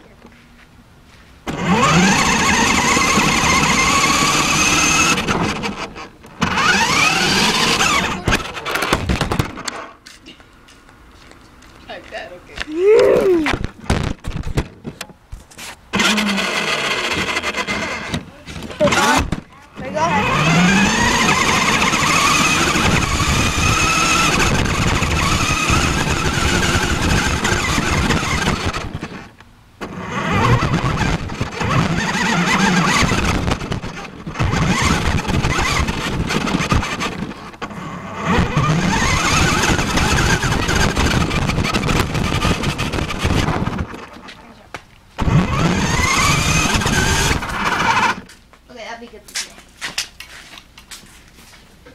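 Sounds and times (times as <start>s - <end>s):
rc car motor whining: 1.5s - 9.0s, 15.9s - 44.2s, 45.2s - 48.3s.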